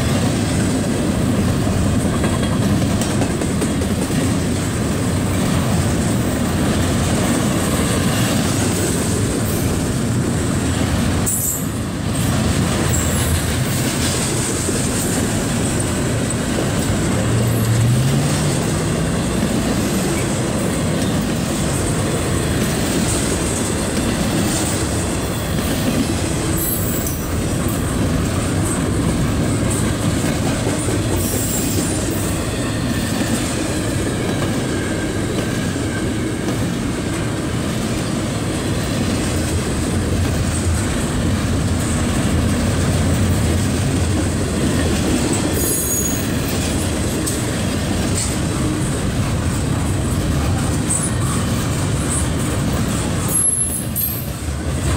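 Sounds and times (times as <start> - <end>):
clickety-clack over rail joints: 0.0 - 54.9
train wheels rumbling on rails: 0.0 - 54.9
high wheel squeals: 45.5 - 46.6, 53.3 - 54.4.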